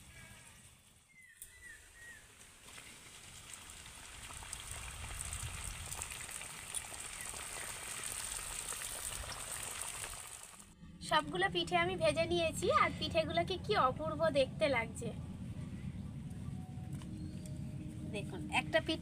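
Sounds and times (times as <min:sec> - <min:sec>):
pastry sizzling in hot oil: 0:01.7 - 0:10.7.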